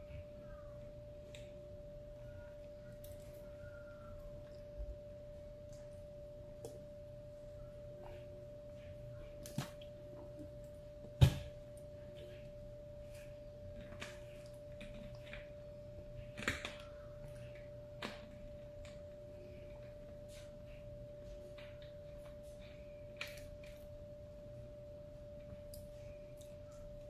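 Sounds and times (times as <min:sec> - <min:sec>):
faint high tone: 0:00.0 - 0:09.4.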